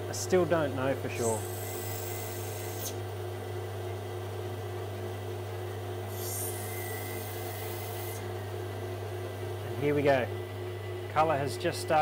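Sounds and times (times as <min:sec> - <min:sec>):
grinding machine motor hum: 0:06.3 - 0:12.0.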